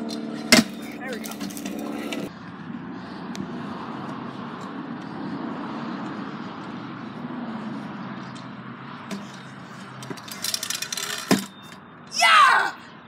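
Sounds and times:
rattling clicks of scooter: 0.0 - 2.3, 9.1 - 11.8
scooter striking ground: 0.0 - 2.3, 9.1 - 9.4, 10.0 - 11.8
scooter wheels rumbling on concrete: 0.0 - 2.3, 9.1 - 11.8.

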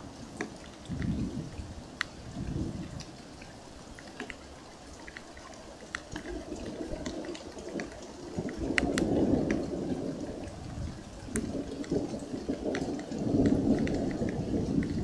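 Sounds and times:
rain: 0.0 - 15.0
sharp drips: 0.0 - 15.0
distant thunder rumbling: 0.8 - 3.2, 6.0 - 15.0.

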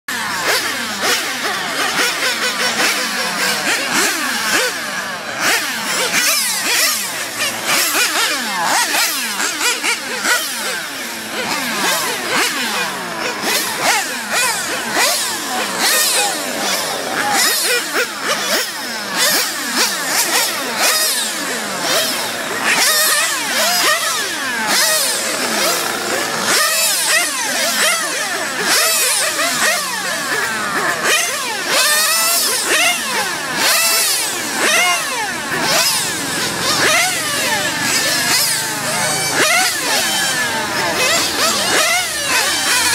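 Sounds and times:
rc car engines screaming: 0.1 - 42.9.

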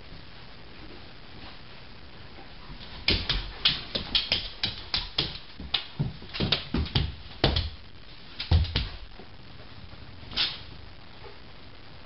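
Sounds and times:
dog paws tapping hardwood floor: 2.7 - 9.3.

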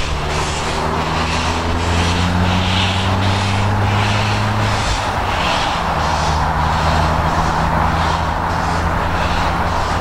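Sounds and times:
steady low drone: 0.0 - 10.0
steam locomotive chuffing: 0.0 - 10.0.

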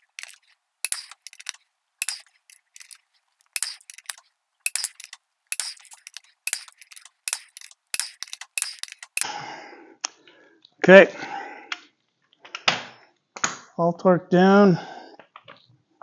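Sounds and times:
ratchet wrench clicking: 0.0 - 9.3.

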